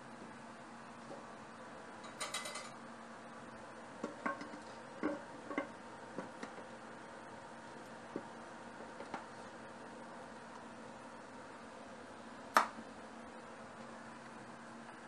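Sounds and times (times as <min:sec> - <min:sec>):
utensils knocking on cookware: 0:02.0 - 0:02.8
clink of metal or crockery: 0:02.1 - 0:02.8.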